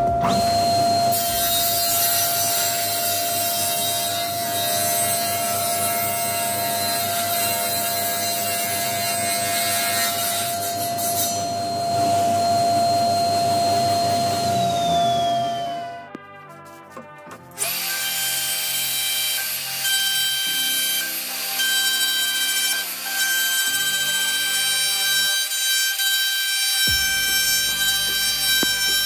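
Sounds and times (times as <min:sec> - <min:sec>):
saw motor whine spinning down: 0:00.0 - 0:16.1, 0:26.9 - 0:29.0
table saw cutting wood: 0:00.0 - 0:16.3, 0:17.0 - 0:29.0.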